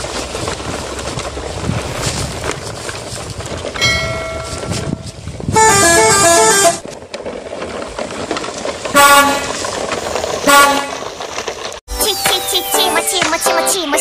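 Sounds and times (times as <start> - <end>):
toy trucks rustling through grass: 0.0 - 12.9
musical horn tune: 5.5 - 6.8, 9.0 - 9.5, 10.5 - 10.9
vehicle horn sound effect: 5.5 - 6.8, 9.0 - 9.5, 10.4 - 11.0.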